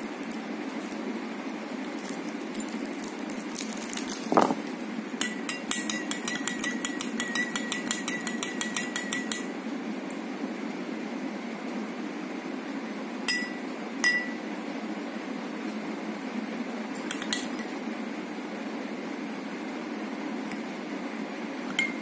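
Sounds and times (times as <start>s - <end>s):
spoon clinking against glass: 5.2s - 9.5s, 13.3s - 14.4s, 21.7s - 22.0s.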